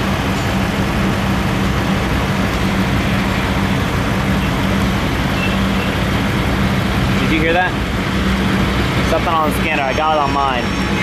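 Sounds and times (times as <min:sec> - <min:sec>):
diesel locomotive engine drone: 0:00.0 - 0:11.0.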